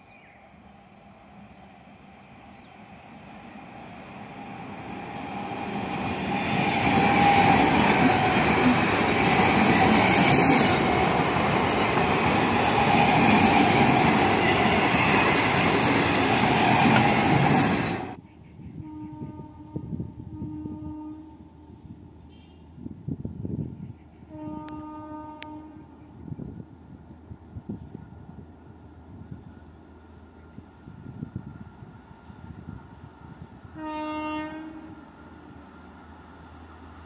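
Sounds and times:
train whine: 0.0s - 37.0s
train wheels rumbling on rails: 1.4s - 18.2s.

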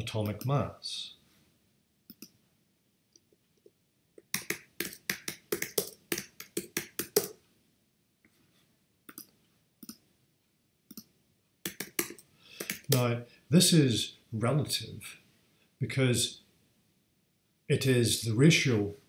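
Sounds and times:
computer keyboard typing: 4.2s - 7.4s, 11.7s - 13.0s.

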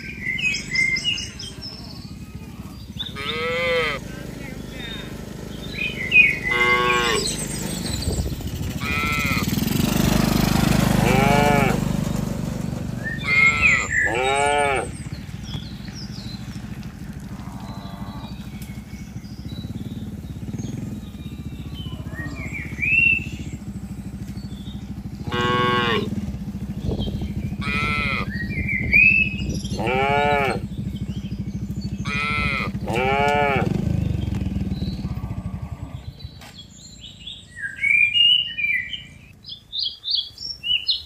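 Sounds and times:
cattle mooing: 3.0s - 4.0s, 6.4s - 7.4s, 8.8s - 9.5s, 11.0s - 11.8s, 13.2s - 15.0s, 17.3s - 18.5s, 25.2s - 26.2s, 27.6s - 28.4s, 29.7s - 30.6s, 32.0s - 33.8s, 35.0s - 36.2s.

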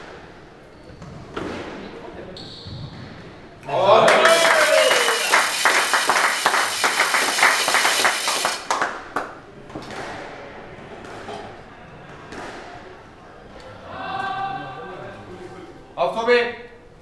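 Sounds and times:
spectators applauding: 4.1s - 9.3s.

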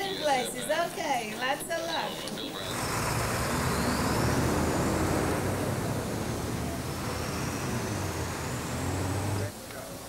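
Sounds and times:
rush of passing vehicles: 2.6s - 9.5s
low engine hum: 2.7s - 9.5s.

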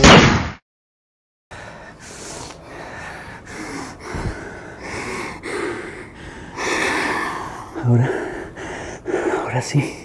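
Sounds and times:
pistol shot: 0.0s - 0.6s
person breathing: 1.5s - 10.0s.

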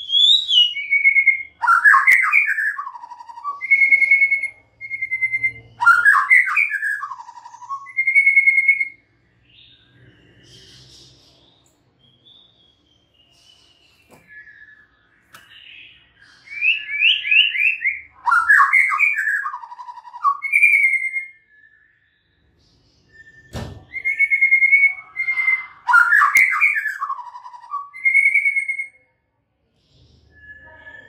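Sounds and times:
bird singing whistles: 0.0s - 11.0s, 12.0s - 29.0s, 30.0s - 31.0s
thump: 23.5s - 23.9s.

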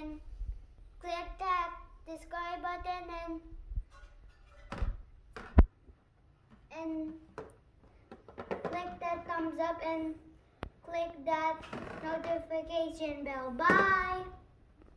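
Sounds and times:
boy sing-song voice: 1.0s - 3.6s, 8.6s - 14.5s.

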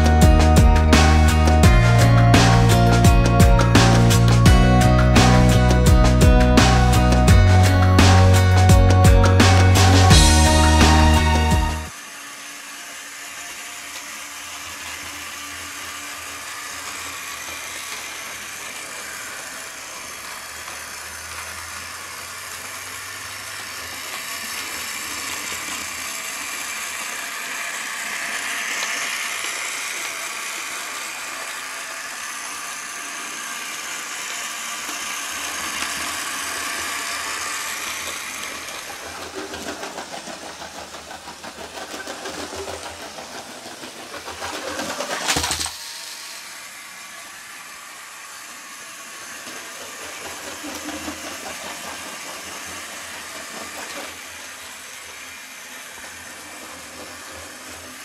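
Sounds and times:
toy train motor whirring: 0.0s - 58.0s
plastic wheels rattling on track: 13.8s - 46.5s, 49.0s - 58.0s.

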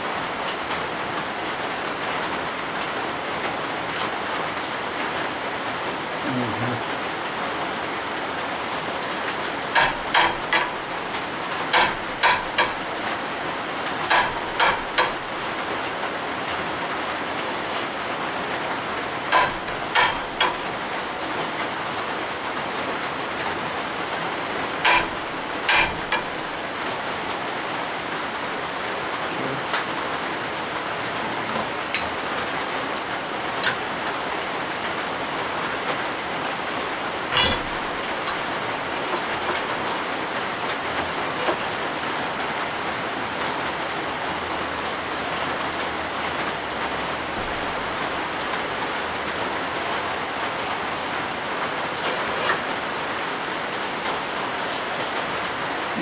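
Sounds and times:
rain on roof: 0.0s - 56.0s
sharp knocks on steel: 9.7s - 10.8s, 11.7s - 12.8s, 14.1s - 15.2s, 19.3s - 20.7s, 24.8s - 26.4s, 37.3s - 37.8s.

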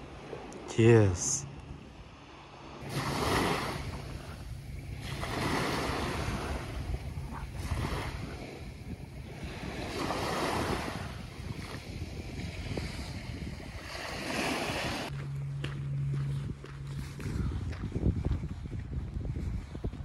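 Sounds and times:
small waves washing on beach: 0.0s - 15.1s
wind rumbling on microphone: 0.0s - 20.0s.

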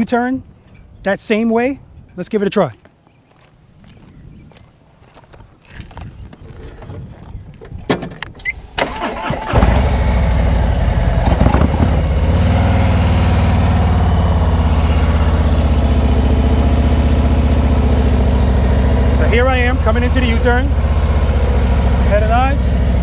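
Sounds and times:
motorcycle engine starting and running: 7.6s - 23.0s.

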